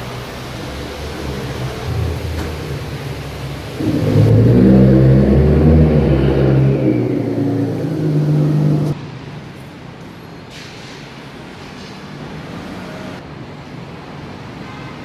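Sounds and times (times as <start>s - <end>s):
car engine driving past: 0.0s - 9.0s.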